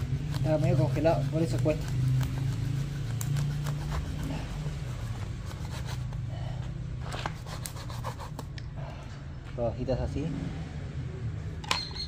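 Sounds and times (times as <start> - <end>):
knife cutting frozen fish: 0.0 - 6.3.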